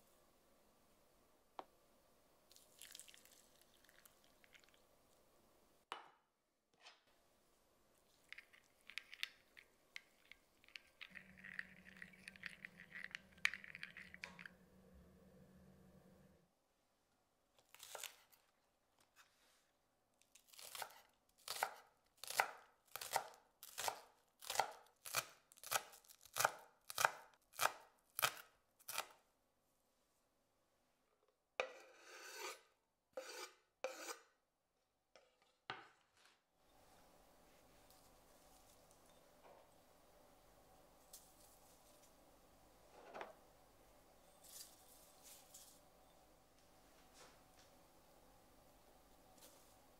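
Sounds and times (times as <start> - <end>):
knife scraping board: 31.6 - 34.3.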